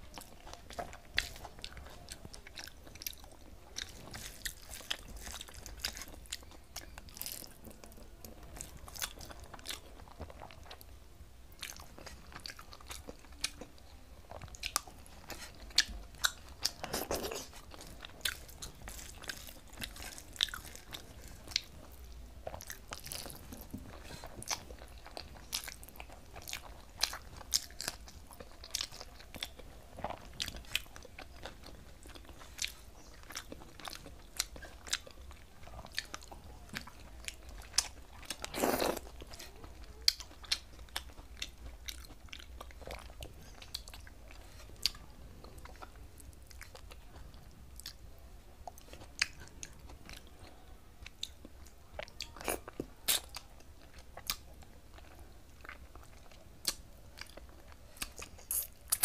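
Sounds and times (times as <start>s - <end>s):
woman chewing food: 0.0s - 59.0s.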